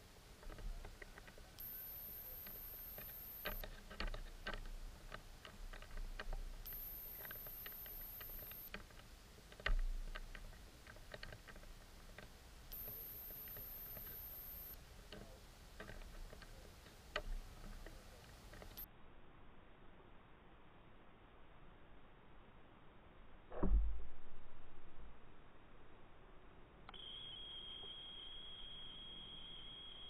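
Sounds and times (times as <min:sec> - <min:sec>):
small underwater clicks: 0:00.4 - 0:18.9
thin high whine: 0:01.6 - 0:03.6, 0:06.6 - 0:08.7, 0:12.7 - 0:14.8, 0:26.9 - 0:30.0.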